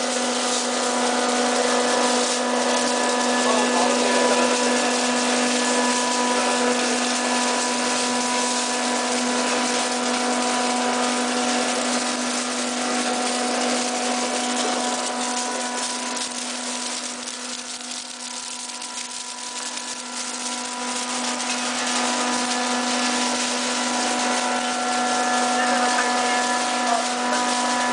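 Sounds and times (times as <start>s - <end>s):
ice machine humming and hissing: 0.0s - 27.9s.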